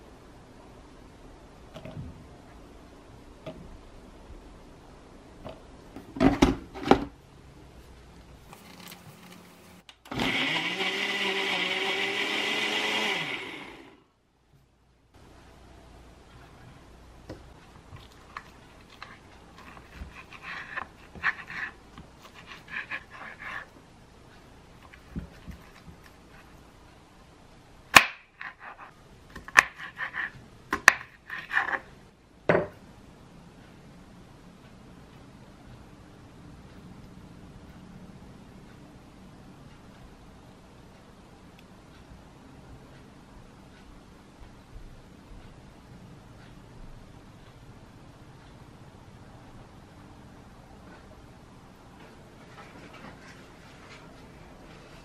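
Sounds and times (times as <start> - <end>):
blender whining: 10.1 - 14.0.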